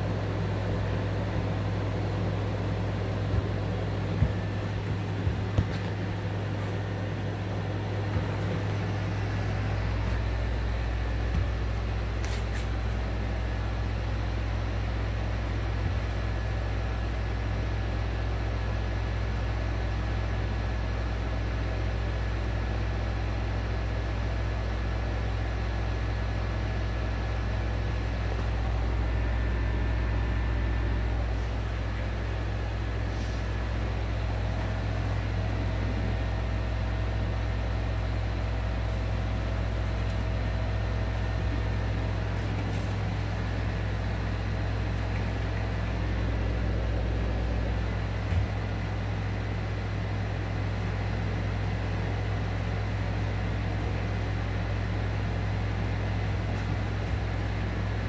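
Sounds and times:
low mechanical hum: 0.0s - 58.0s.

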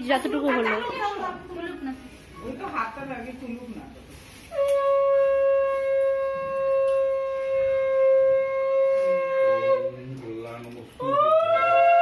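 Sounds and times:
conch shell blown: 4.3s - 10.2s.

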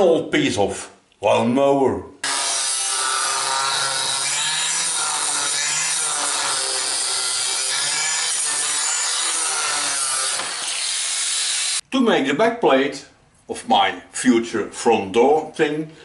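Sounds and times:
angle grinder cutting steel: 2.2s - 11.8s.

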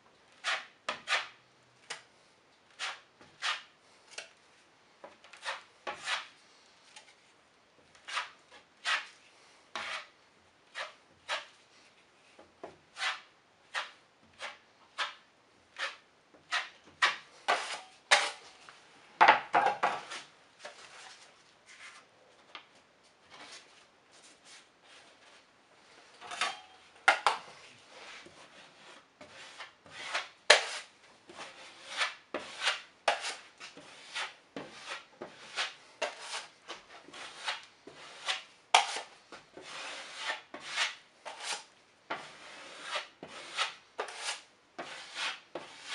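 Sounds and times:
drywall knife scraping compound: 0.3s - 2.1s, 2.7s - 4.4s, 5.0s - 18.7s, 19.8s - 22.1s, 23.3s - 45.9s
knife scraping metal pan: 0.4s - 1.4s, 2.7s - 3.7s, 5.3s - 6.3s, 8.0s - 9.2s, 9.8s - 10.1s, 10.7s - 11.5s, 12.9s - 15.2s, 15.8s - 18.5s, 26.2s - 45.9s.

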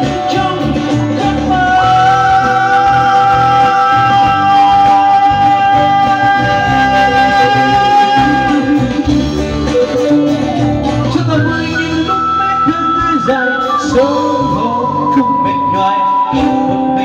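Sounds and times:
bass guitar: 0.0s - 17.0s
electric guitar: 0.0s - 17.0s
electronic keyboards: 0.0s - 17.0s.

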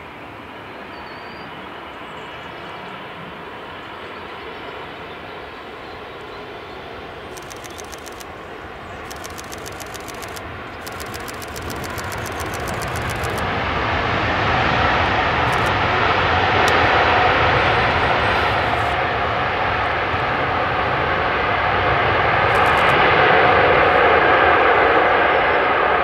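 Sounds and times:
jet engines rushing: 6.0s - 26.0s.

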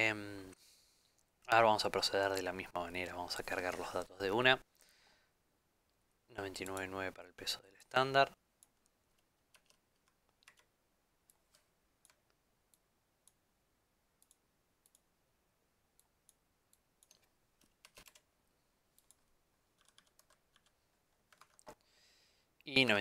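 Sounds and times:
computer mouse and keyboard clicks: 17.0s - 18.2s.

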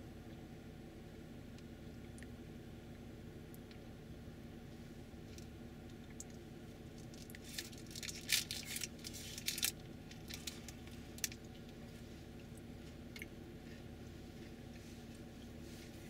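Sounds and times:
low engine hum: 0.0s - 16.0s
crackling and rustling clicks: 5.3s - 11.8s.

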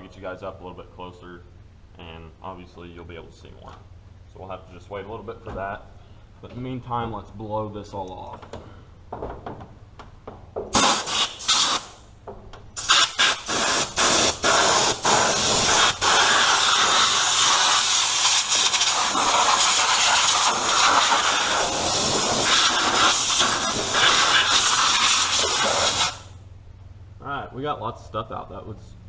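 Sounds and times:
compressed air blow gun hissing: 10.7s - 12.1s, 12.8s - 26.4s.

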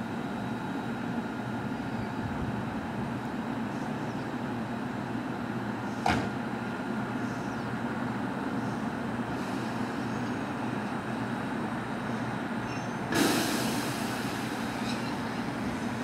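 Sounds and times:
electric train equipment humming: 0.0s - 16.0s
short knock: 6.0s - 6.3s.

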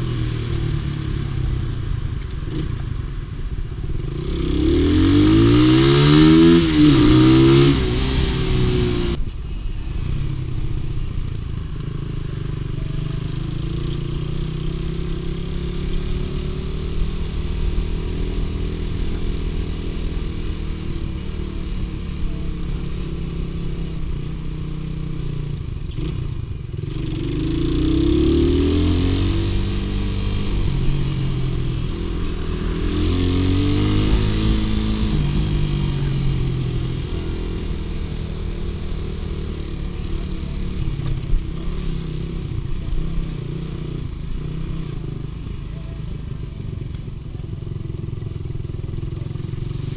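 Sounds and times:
motorcycle engine shifting gears: 11.6s - 49.9s.

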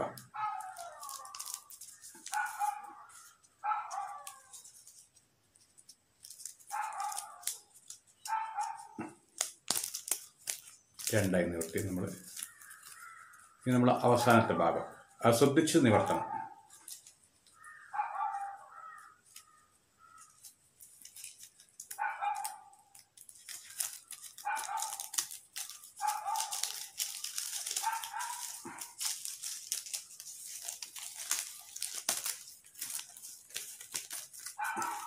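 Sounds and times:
stiff paper crackling: 0.0s - 35.0s
dog barking: 0.3s - 1.4s, 2.3s - 4.4s, 6.7s - 7.6s, 8.3s - 9.0s, 16.0s - 16.7s, 17.9s - 19.0s, 22.0s - 22.8s, 24.4s - 25.2s, 26.0s - 26.7s, 27.8s - 29.0s, 34.6s - 35.0s.

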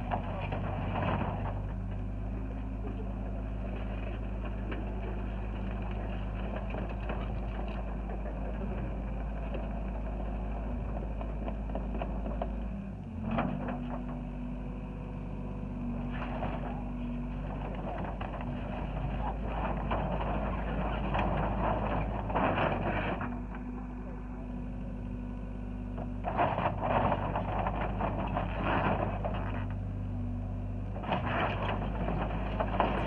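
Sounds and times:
excavator diesel engine running: 0.0s - 33.0s.

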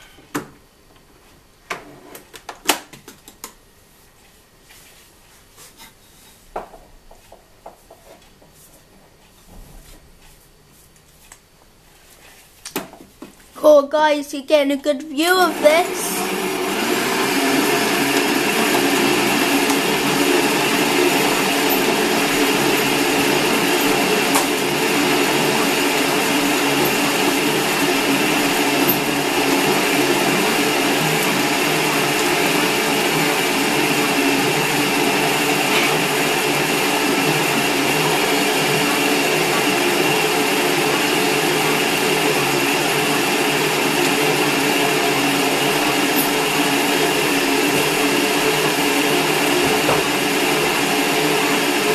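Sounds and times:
electric stand mixer running: 15.4s - 51.9s.

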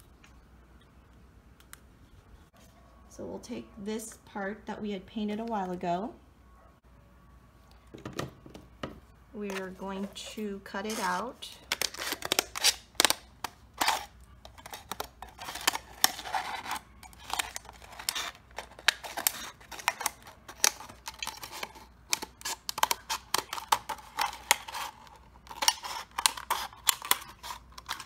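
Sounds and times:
plastic crackling: 9.4s - 28.0s
scissors snipping plastic: 9.5s - 28.0s.

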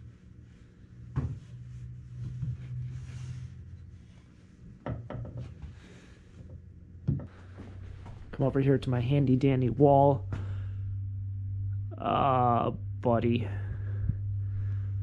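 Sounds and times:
soft rubbing: 0.0s - 4.8s
steady low hum: 0.0s - 15.0s
wooden chair knocking: 4.8s - 5.5s.

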